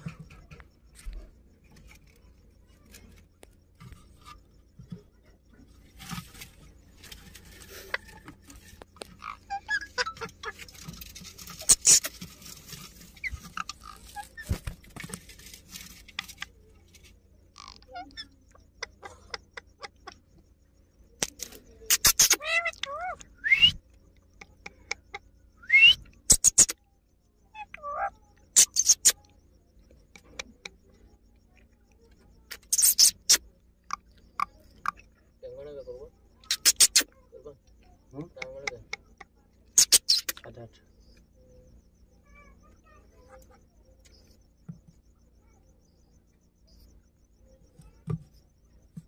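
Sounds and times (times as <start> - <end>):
parakeets scratching and rustling: 0.0 - 20.6, 21.2 - 23.2, 28.4 - 29.2, 32.0 - 33.5, 36.0 - 37.1, 38.4 - 40.4
short squeaks: 5.8 - 16.6, 21.3 - 23.8, 24.8 - 26.8, 28.4 - 29.4, 32.0 - 33.6, 36.3 - 37.2, 39.0 - 40.5.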